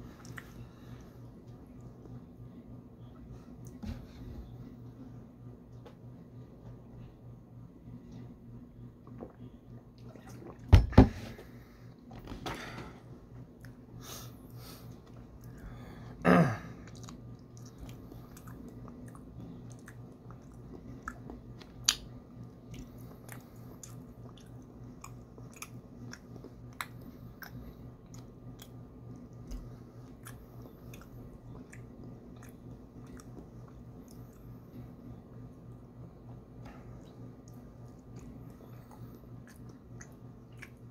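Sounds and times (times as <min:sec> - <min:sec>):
low steady hum: 0:00.0 - 0:40.9
person chewing: 0:00.1 - 0:00.6, 0:16.8 - 0:34.5, 0:36.2 - 0:40.9
wet mouth clicks: 0:30.2 - 0:33.4.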